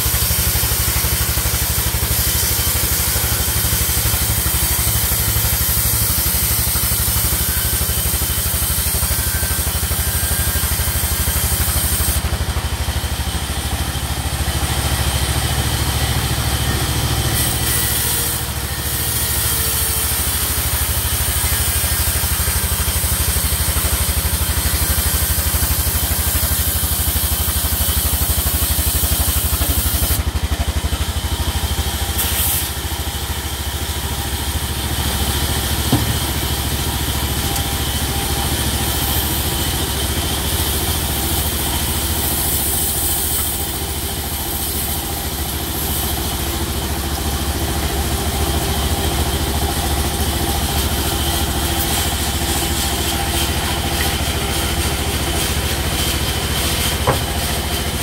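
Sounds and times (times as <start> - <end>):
band saw machinery droning: 0.0 - 58.0
short knock: 35.9 - 36.6, 57.0 - 57.5.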